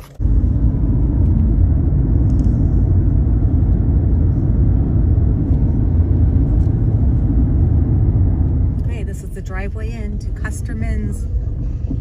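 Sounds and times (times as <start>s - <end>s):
car driving on paved road: 0.0s - 12.0s.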